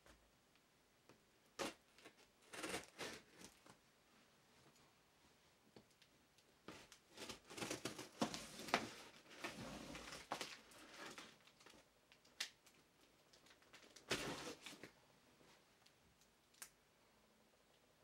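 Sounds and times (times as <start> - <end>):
cardboard scraping and rustling: 6.7 - 11.3, 14.0 - 14.9
box scraping as shifted: 8.3 - 10.2, 14.1 - 14.7.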